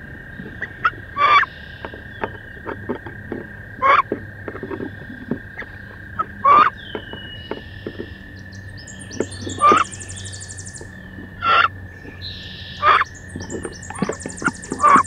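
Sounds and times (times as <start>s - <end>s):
ducks calling: 0.0s - 15.0s
scrapes and knocks against wood: 1.8s - 5.7s
songbird trilling: 5.6s - 15.0s.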